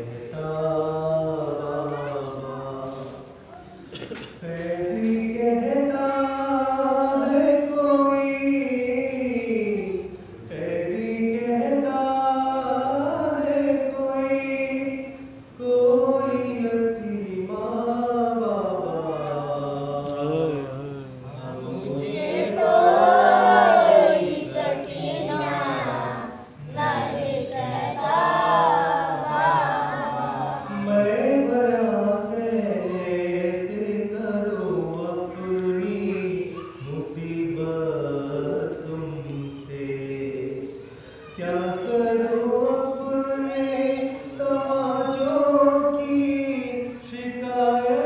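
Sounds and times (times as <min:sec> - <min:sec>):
man chanting a lament: 0:04.4 - 0:23.7, 0:28.3 - 0:42.7.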